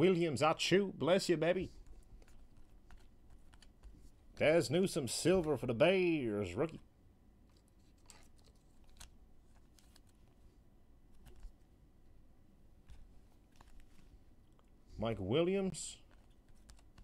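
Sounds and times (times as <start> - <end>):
trading cards clicking and tapping: 1.8 - 4.5, 16.0 - 17.0.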